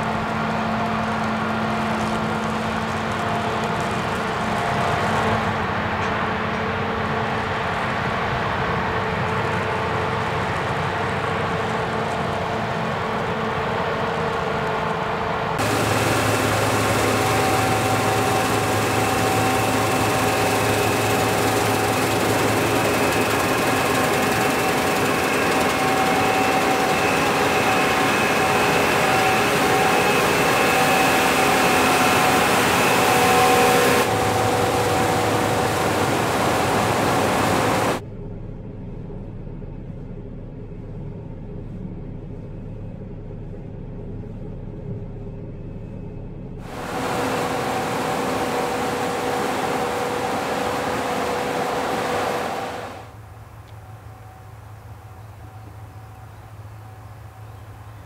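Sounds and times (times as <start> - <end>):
combine harvester running: 0.0 - 38.0, 46.6 - 55.0.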